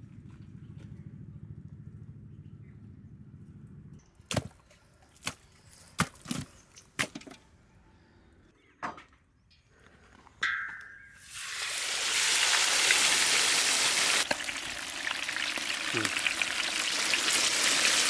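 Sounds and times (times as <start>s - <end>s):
low fluttering rumble: 0.0s - 4.2s.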